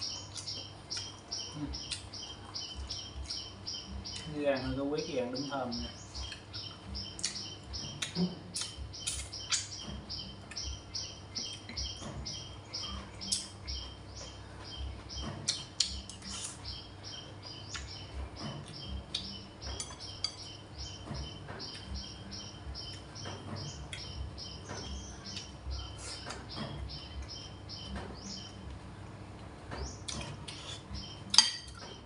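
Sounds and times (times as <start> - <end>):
steady high chirping: 0.0 - 28.7
cutlery clinking on china: 31.3 - 31.8.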